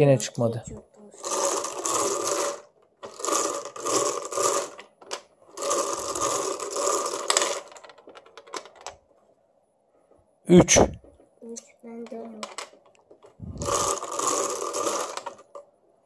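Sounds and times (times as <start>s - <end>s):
plastic balls rattling in lotto cage: 1.2s - 9.0s, 12.4s - 15.6s.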